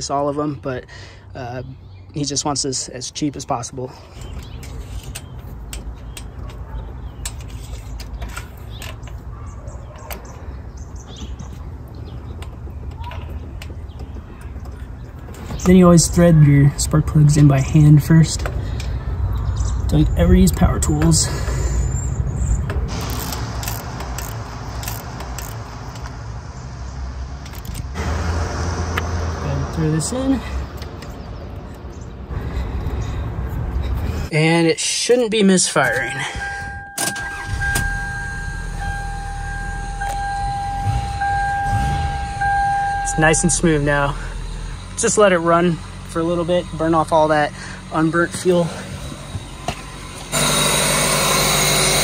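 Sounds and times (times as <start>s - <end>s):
ratchet clicks: 23.0s - 26.1s.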